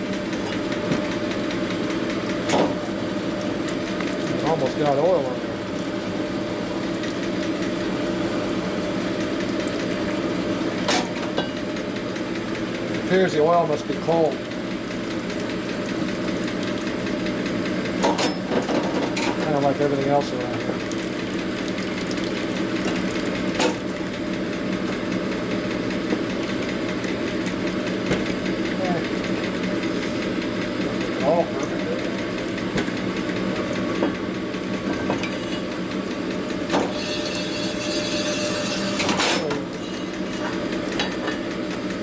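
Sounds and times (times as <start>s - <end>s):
machine humming: 19.2s - 42.0s.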